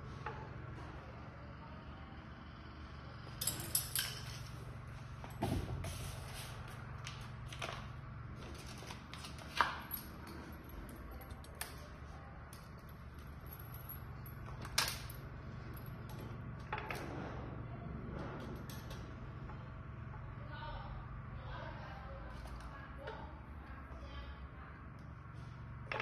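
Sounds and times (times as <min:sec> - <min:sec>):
low steady hum: 0:00.0 - 0:26.0
parts clicking and knocking: 0:03.3 - 0:05.8, 0:06.7 - 0:20.4, 0:25.7 - 0:26.0.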